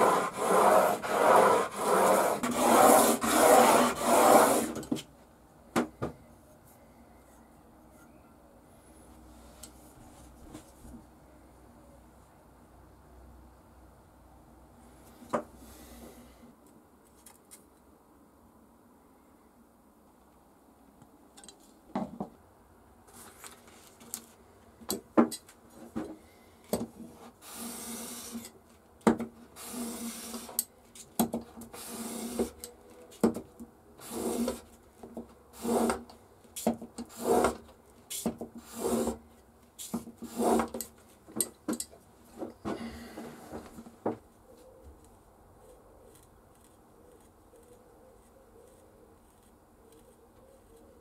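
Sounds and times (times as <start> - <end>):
blade rasping on abrasive paper: 0.0 - 4.8, 29.6 - 30.5, 31.7 - 32.6, 34.0 - 34.7, 35.5 - 36.1, 37.0 - 37.6, 38.2 - 39.2, 39.8 - 40.9, 45.6 - 51.0.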